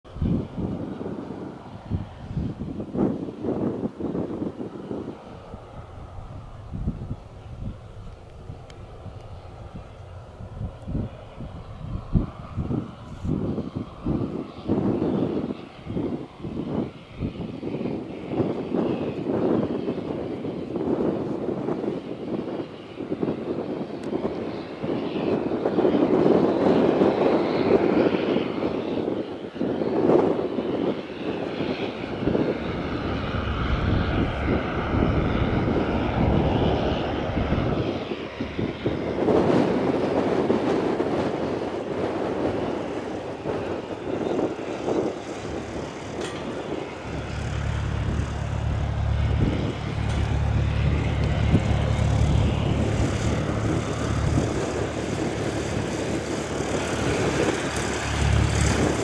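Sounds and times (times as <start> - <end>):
propeller plane engine taxiing: 0.0 - 59.0
steady low hum: 41.9 - 59.0.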